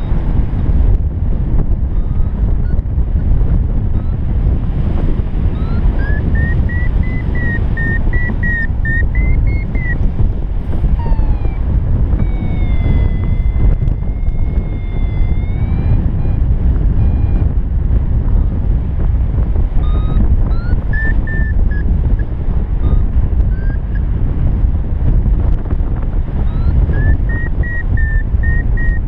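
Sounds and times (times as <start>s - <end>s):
wind buffeting microphone: 0.0s - 29.0s
variometer beeping: 1.6s - 3.0s, 3.8s - 18.6s, 19.8s - 24.2s, 26.3s - 29.0s.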